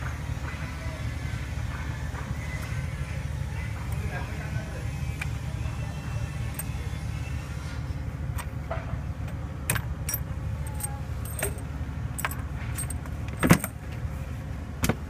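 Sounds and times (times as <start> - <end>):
steady low hum: 0.0 - 15.0
metal objects clinking: 10.0 - 13.7.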